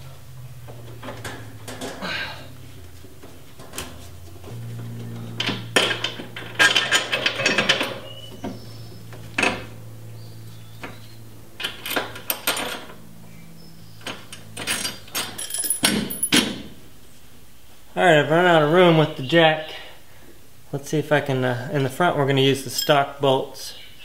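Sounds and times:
metallic clanking: 0:00.0 - 0:16.8
steady low hum: 0:00.0 - 0:22.4.

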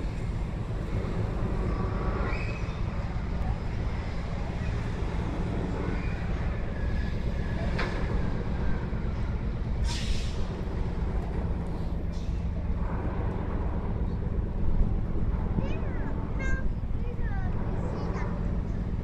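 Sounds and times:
ship machinery rumble: 0:00.0 - 0:19.0
short hiss: 0:09.8 - 0:10.4.

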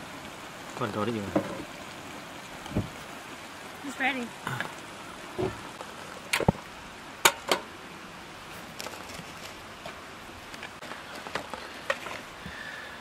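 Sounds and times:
steady low hiss: 0:00.0 - 0:13.0.

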